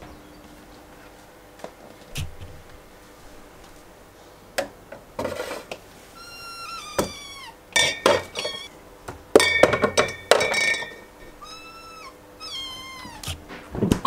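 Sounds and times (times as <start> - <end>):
cat meowing: 6.2 - 7.6, 8.3 - 8.7, 11.4 - 13.4
glass bottles clinking: 7.8 - 8.7, 9.4 - 11.2.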